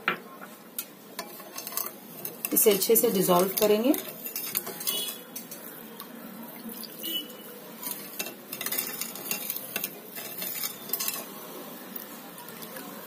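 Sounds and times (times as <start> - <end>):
spoon stirring in glass bowl: 0.8 - 13.0
spoon clinking against bowl: 1.2 - 5.7.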